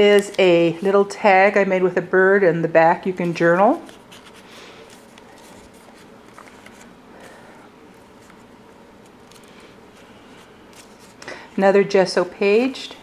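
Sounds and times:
paper rustling: 3.2s - 11.4s.

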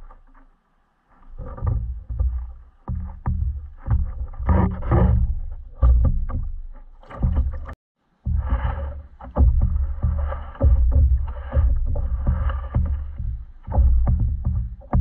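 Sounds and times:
water sloshing against hull: 0.0s - 15.0s
microphone rumble: 7.1s - 15.0s.

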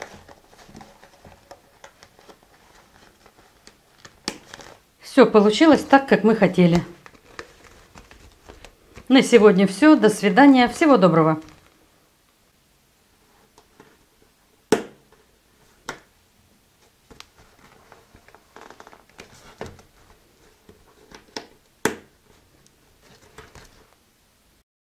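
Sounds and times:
plastic bag rustling: 0.0s - 4.9s, 5.5s - 11.9s, 16.9s - 21.4s.

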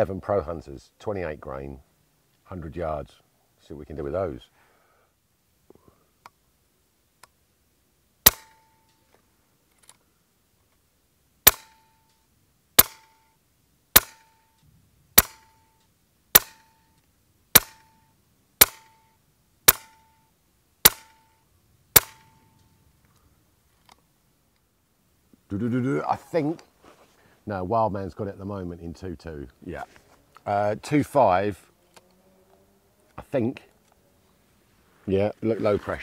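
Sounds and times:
air rifle shots: 8.2s - 8.8s, 11.4s - 11.9s, 12.8s - 13.2s, 13.9s - 14.4s, 15.2s - 15.6s, 16.3s - 16.8s, 17.5s - 18.0s, 18.6s - 19.0s, 19.7s - 20.1s, 20.8s - 21.3s, 21.9s - 22.5s.

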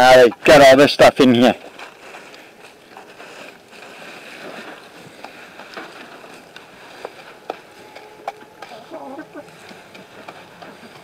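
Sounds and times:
hand rustling through wood shavings: 1.5s - 8.0s.

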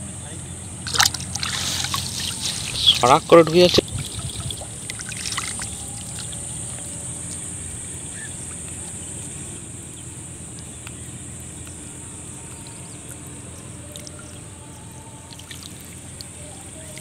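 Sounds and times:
steady low rumble: 0.0s - 17.0s
faint high hiss: 0.7s - 9.6s
water splashes and drips: 0.8s - 7.5s, 13.8s - 14.4s, 15.3s - 17.0s.

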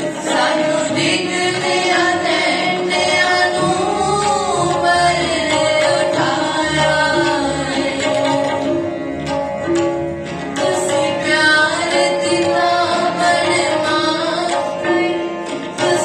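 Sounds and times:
girls singing a hymn: 0.0s - 7.6s
harmonium chords: 0.0s - 16.0s
tabla strokes: 0.0s - 16.0s.

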